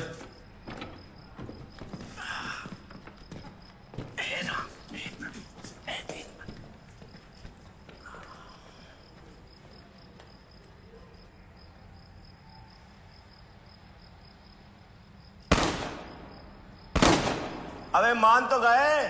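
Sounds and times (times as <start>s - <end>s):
gunshots with echo: 15.5s - 16.2s, 17.0s - 17.9s.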